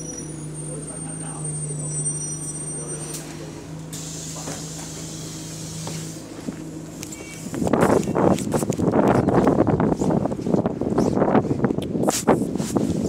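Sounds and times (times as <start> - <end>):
bus diesel engine idling: 0.0 - 13.0
wind buffeting on microphone: 7.4 - 13.0.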